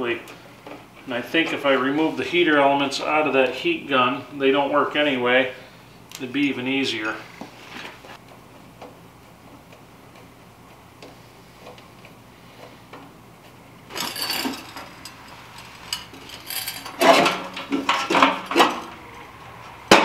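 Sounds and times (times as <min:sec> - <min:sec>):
metal clanks and scrapes: 0:13.9 - 0:19.1
sheet metal clattering: 0:13.9 - 0:19.1.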